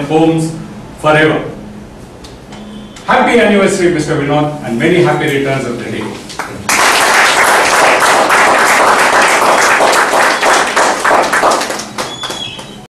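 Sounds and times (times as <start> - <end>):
audience applauding: 6.4 - 12.9.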